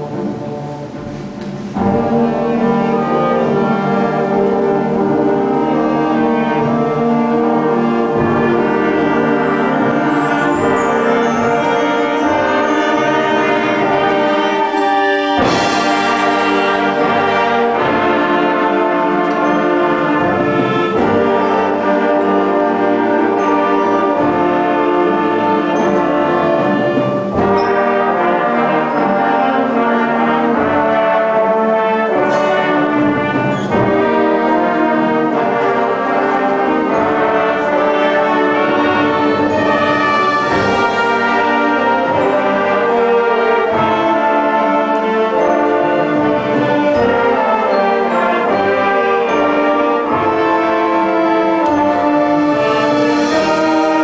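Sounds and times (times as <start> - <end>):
concert band playing chords: 0.0 - 54.0
flutes playing: 0.0 - 54.0
percussion crash: 8.2 - 18.5.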